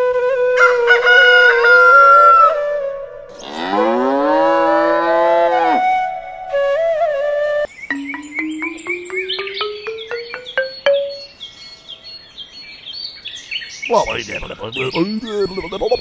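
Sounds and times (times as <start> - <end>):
flute music: 5.7 - 11.4.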